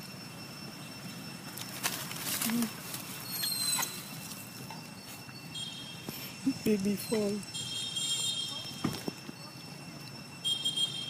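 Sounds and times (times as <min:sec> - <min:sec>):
rustling in dry leaves: 0:00.8 - 0:07.6
monkey squeaks: 0:02.5 - 0:04.3.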